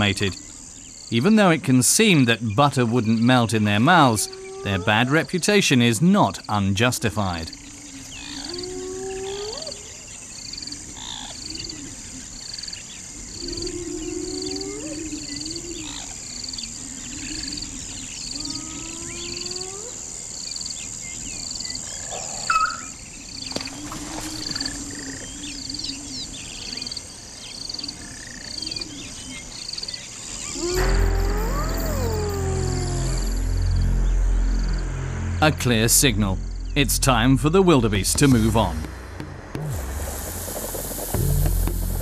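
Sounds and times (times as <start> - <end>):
insect chirping: 0.0 - 42.0
high insect drone: 6.4 - 38.9, 39.6 - 42.0
low rising bird calls: 22.0 - 26.9, 30.3 - 35.5
small bird chirps: 22.1 - 23.0.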